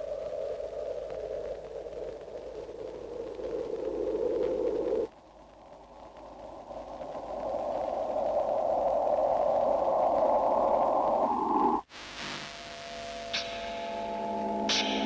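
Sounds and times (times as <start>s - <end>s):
quiet steady electronic tones: 0.0s - 15.0s
static-like electronic rushing: 5.7s - 15.0s
thin hiss: 6.0s - 15.0s.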